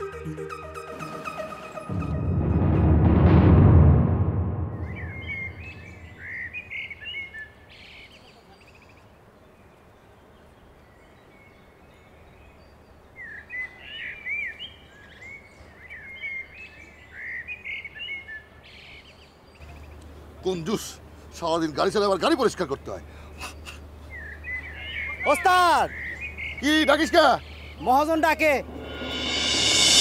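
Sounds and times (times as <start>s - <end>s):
small birds chirping: 5.0s - 28.5s.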